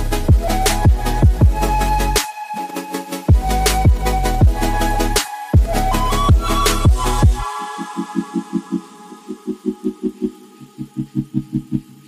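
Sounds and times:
fast pulsing beat: 0:00.0 - 0:02.0, 0:03.3 - 0:07.4
electronic music: 0:00.0 - 0:12.0.

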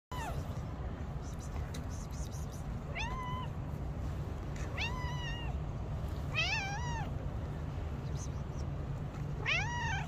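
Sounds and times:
cat meowing: 0:02.9 - 0:03.6, 0:04.7 - 0:05.6, 0:06.3 - 0:07.1, 0:09.4 - 0:10.0.

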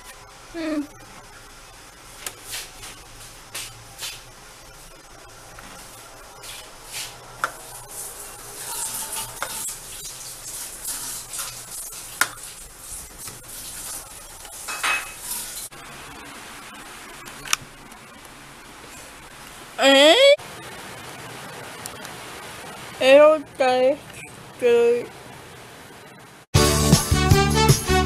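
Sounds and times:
spoon stirring in ceramic bowl: 0:07.5 - 0:15.5.

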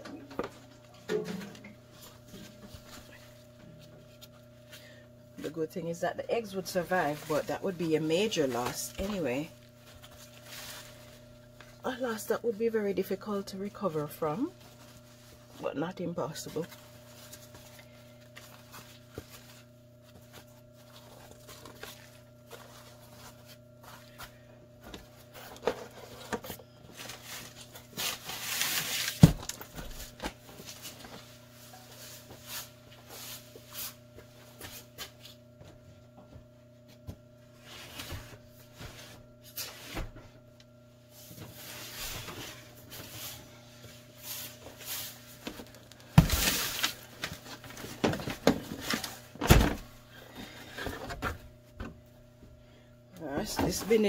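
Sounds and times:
steady low hum: 0:00.0 - 0:54.0
paper rustling and scraping: 0:06.4 - 0:11.6, 0:16.4 - 0:24.4, 0:25.2 - 0:34.0.

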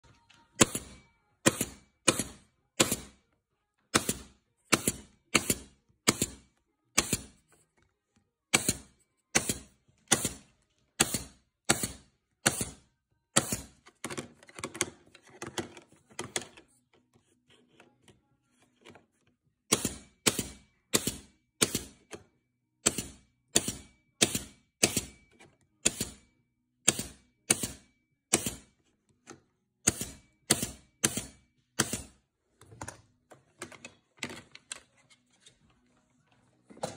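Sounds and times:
nail gun shots: 0:00.6 - 0:03.2, 0:03.9 - 0:06.4, 0:07.0 - 0:07.3, 0:08.5 - 0:12.8, 0:13.4 - 0:13.8, 0:19.7 - 0:22.0, 0:22.8 - 0:25.2, 0:25.8 - 0:26.2, 0:26.8 - 0:28.7, 0:29.8 - 0:32.2.

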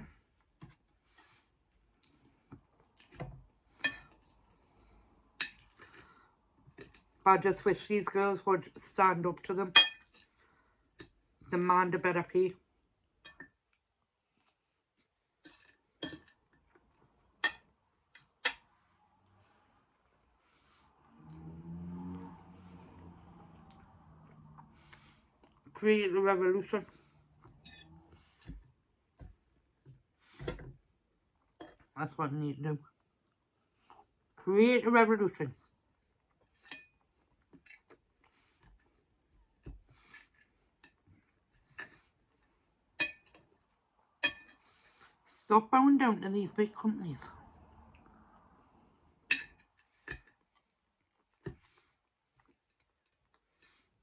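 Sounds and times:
soft chewing: 0:00.1 - 0:07.2, 0:18.2 - 0:25.8, 0:32.9 - 0:34.4, 0:35.6 - 0:45.3, 0:47.8 - 0:54.0
cutlery clinking on a plate: 0:44.2 - 0:44.7.

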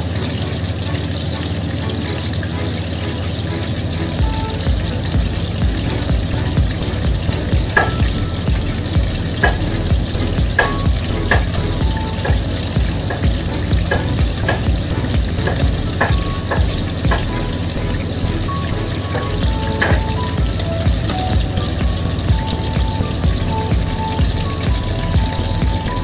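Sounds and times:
oil sizzling in a wok: 0:00.0 - 0:26.0
background music with low beat: 0:00.1 - 0:26.0.

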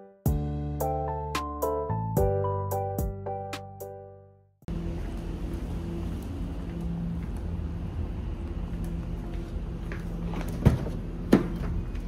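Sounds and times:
low mechanical hum: 0:04.7 - 0:12.0
faint footsteps: 0:08.4 - 0:12.0.

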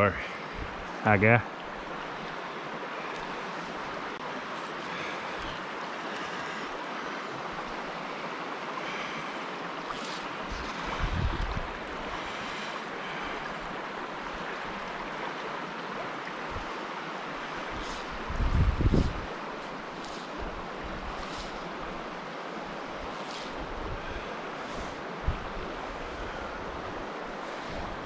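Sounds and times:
creek water rushing: 0:00.0 - 0:28.0
wind buffet on microphone: 0:00.5 - 0:01.0, 0:10.4 - 0:12.6, 0:17.6 - 0:22.2, 0:22.8 - 0:28.0.

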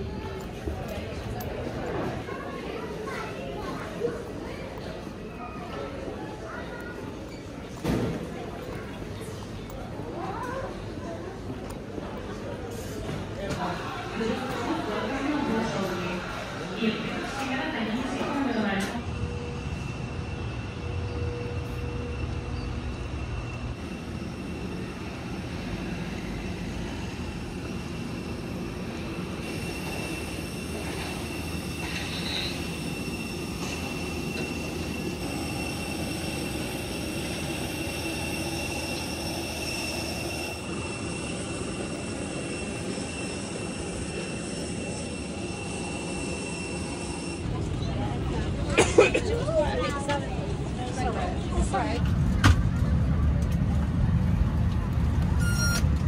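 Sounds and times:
jet airliner whine and rumble: 0:00.0 - 0:56.0.

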